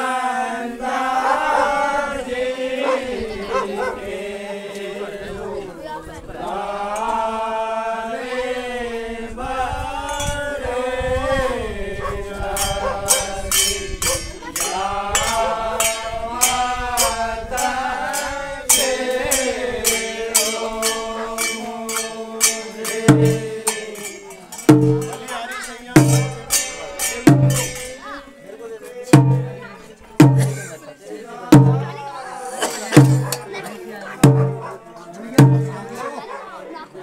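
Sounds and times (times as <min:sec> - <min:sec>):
men singing folk song together: 0:00.0 - 0:36.4
drum heavy beats: 0:12.6 - 0:28.1, 0:29.1 - 0:30.8, 0:31.5 - 0:33.6, 0:34.2 - 0:36.0
sharp percussion strikes: 0:12.6 - 0:28.2, 0:29.1 - 0:30.8, 0:31.5 - 0:32.0, 0:32.6 - 0:33.6, 0:34.2 - 0:36.0.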